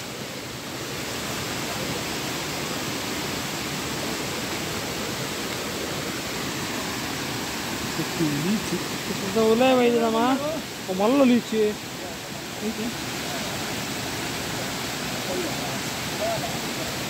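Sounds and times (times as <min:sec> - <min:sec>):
stream water flowing: 0:00.0 - 0:17.0.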